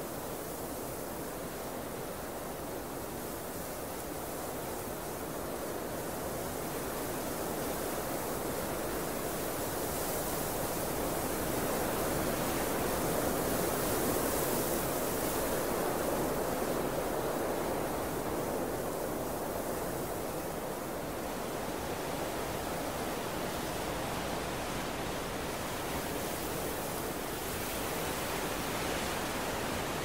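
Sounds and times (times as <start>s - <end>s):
steady wind: 0.0s - 30.0s.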